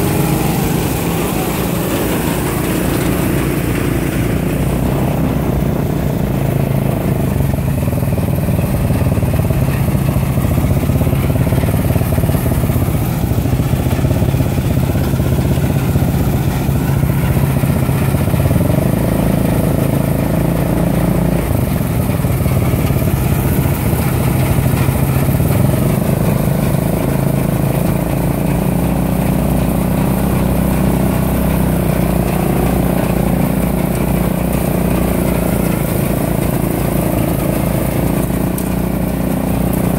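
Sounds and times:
combine harvester running: 0.0 - 39.9.

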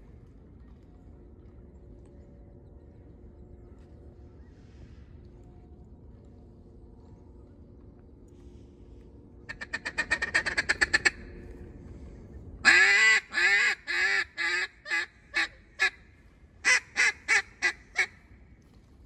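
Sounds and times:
duck call feeding chuckle: 9.5 - 11.1
duck call quacks: 9.5 - 11.2, 12.6 - 16.0, 16.6 - 18.2.

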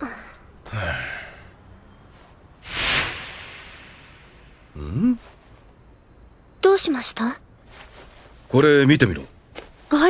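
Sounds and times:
whoosh: 2.6 - 4.7.

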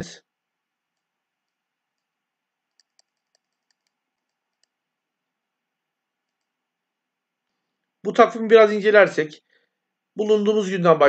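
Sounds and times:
faint computer mouse clicks: 2.7 - 4.8.

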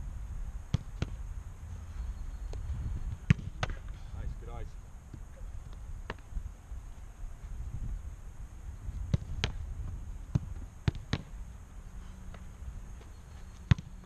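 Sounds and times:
soccer ball thuds: 0.7 - 1.2, 2.5 - 3.8, 9.0 - 11.4, 12.3 - 14.0.

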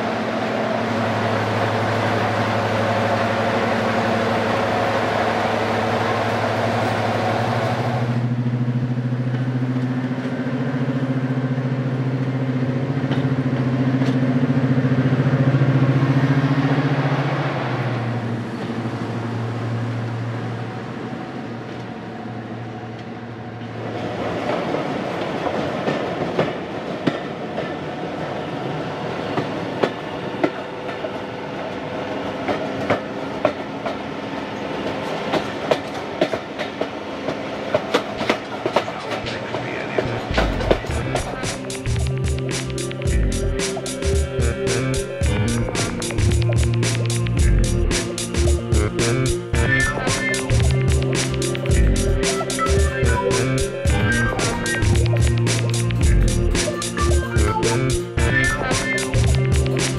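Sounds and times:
diesel locomotive engine running: 0.0 - 27.6, 28.4 - 59.9
locomotive passing under power: 0.0 - 59.9
wheels clattering over rail joints: 34.8 - 42.0.

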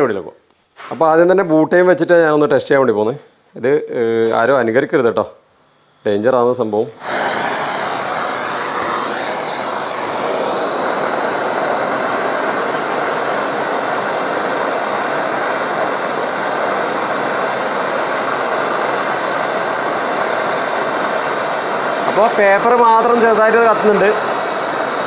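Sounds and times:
blowtorch hissing: 5.6 - 25.0.

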